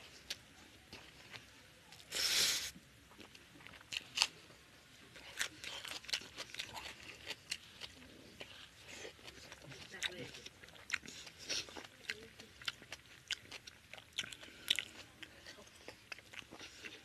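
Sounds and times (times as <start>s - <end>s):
short hiss: 2.1s - 2.7s
biting and chewing: 3.1s - 17.0s.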